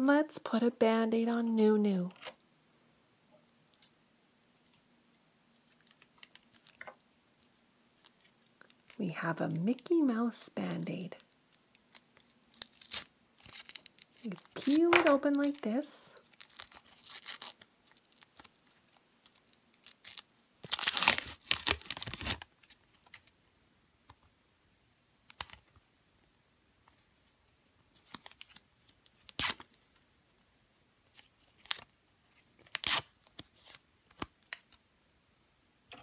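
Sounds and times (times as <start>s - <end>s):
bandage crinkling: 5.5s - 9.0s, 11.2s - 23.3s, 27.9s - 30.5s, 31.1s - 34.8s
paper wrapper tearing: 5.6s - 6.8s, 11.9s - 23.3s, 28.0s - 29.8s, 31.1s - 34.8s.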